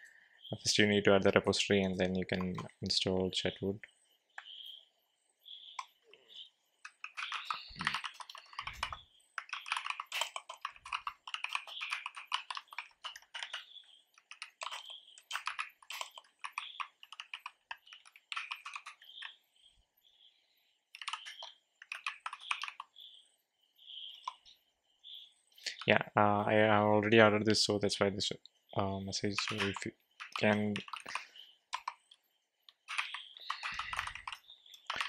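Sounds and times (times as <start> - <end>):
typing on computer keyboard: 6.8 - 19.4, 20.9 - 23.0, 29.4 - 35.0.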